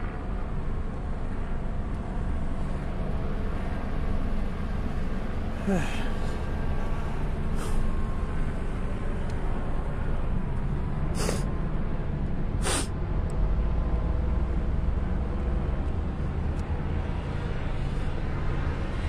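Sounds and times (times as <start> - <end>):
low rumble of vehicle traffic: 0.0 - 19.0
short hisses: 11.2 - 11.5, 12.6 - 12.9.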